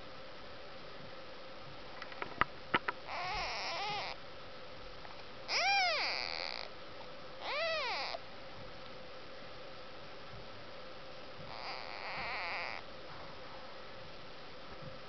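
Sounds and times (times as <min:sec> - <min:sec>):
kittens mewing: 0:03.1 - 0:04.2, 0:05.5 - 0:06.7, 0:07.4 - 0:08.2, 0:11.5 - 0:12.8.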